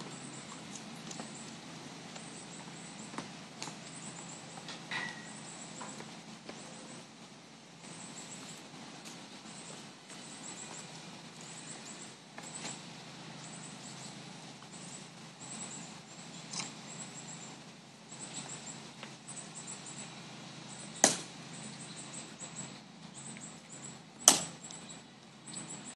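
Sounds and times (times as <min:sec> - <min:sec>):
footstep clicks: 0:00.0 - 0:04.9, 0:05.7 - 0:12.9.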